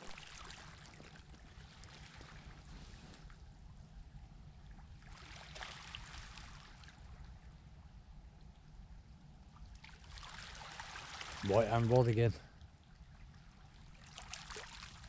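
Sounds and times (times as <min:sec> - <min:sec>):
low steady rumble: 0:00.0 - 0:15.0
sea washing on shore: 0:10.1 - 0:12.3.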